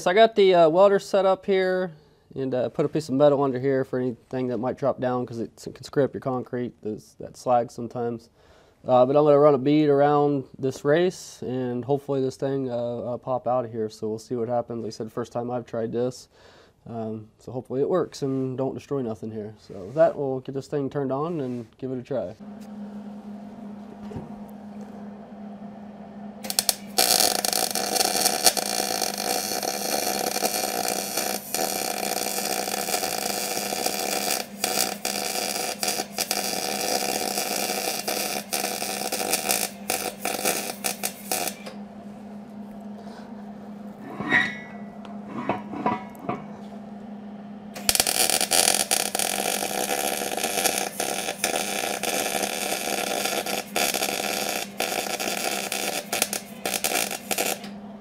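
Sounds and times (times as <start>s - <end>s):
low steady hum: 22.2s - 58.0s
welding arc crackling: 26.3s - 41.8s, 47.7s - 57.8s.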